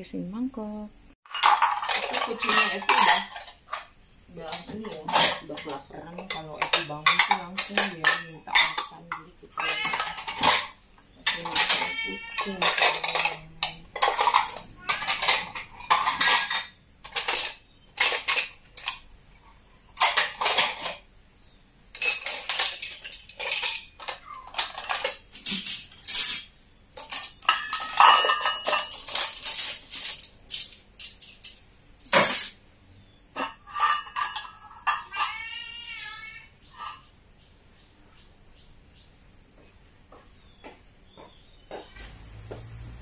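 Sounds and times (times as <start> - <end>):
dishes clinking and clattering: 1.3 - 19.1, 19.9 - 21.0, 21.9 - 32.6, 33.3 - 37.0.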